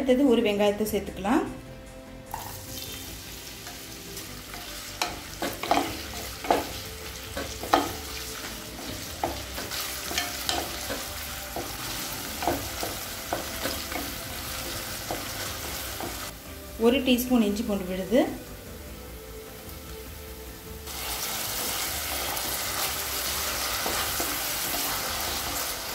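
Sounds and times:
onions sizzling in hot oil: 2.3s - 25.9s
spatula scraping a pan: 4.5s - 16.3s.

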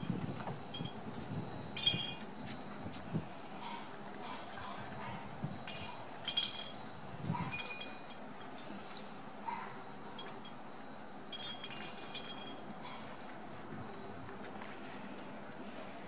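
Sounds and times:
small metal chimes tinkling: 1.8s - 2.2s, 5.6s - 6.8s, 7.5s - 8.8s, 11.3s - 12.6s.

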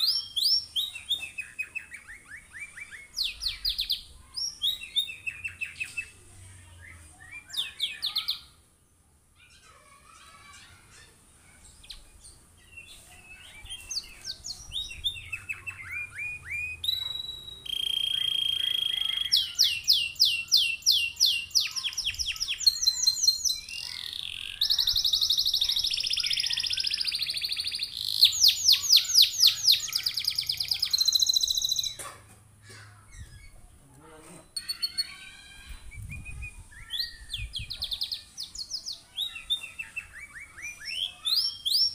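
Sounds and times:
canary singing: 0.0s - 8.6s, 9.4s - 32.0s, 33.0s - 41.9s.

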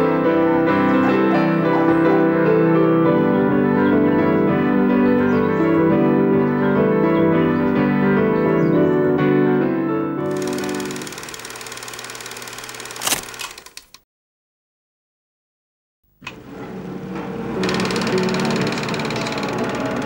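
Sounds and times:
piano soundtrack music: 0.0s - 11.3s, 17.0s - 20.0s.

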